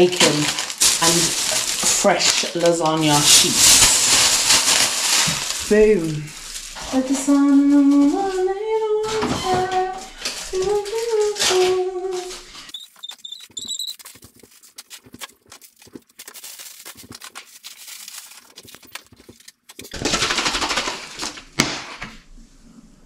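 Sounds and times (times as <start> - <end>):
woman singing: 6.8 - 12.4.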